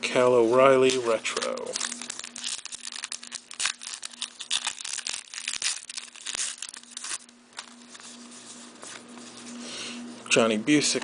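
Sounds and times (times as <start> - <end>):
faint steady hum: 0.0 - 11.0
cards rustling: 0.6 - 9.6
plastic wrapper crinkling and tearing: 0.7 - 8.3.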